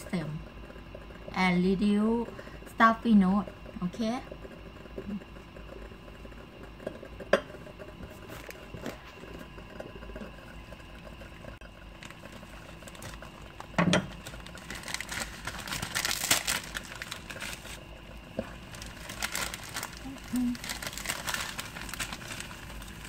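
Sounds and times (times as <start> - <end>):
packaging crinkling: 11.9 - 23.0.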